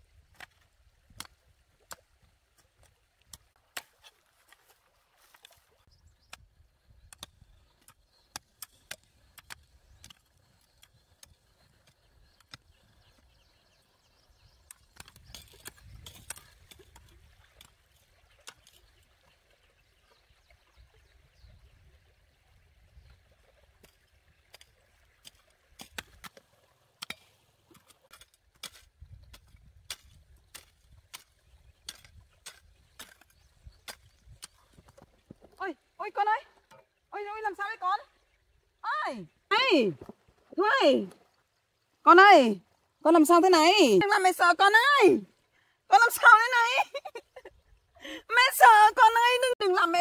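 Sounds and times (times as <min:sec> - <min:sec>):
hoes chopping dry soil: 0:00.3 - 0:05.6, 0:14.4 - 0:19.0, 0:23.8 - 0:35.6.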